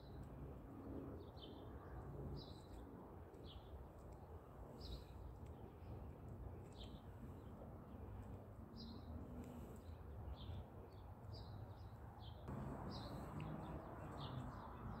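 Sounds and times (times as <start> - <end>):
songbird chirps: 6.6 - 15.0
low outdoor rumble: 12.4 - 15.0.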